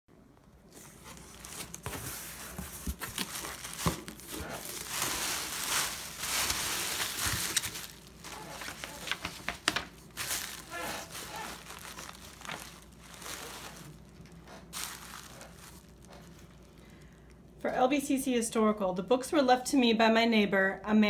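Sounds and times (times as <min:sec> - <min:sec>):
bubble wrap crinkling: 0:00.7 - 0:17.3
cardboard box being opened: 0:00.8 - 0:13.9
sharp crackles and knocks: 0:01.0 - 0:16.7.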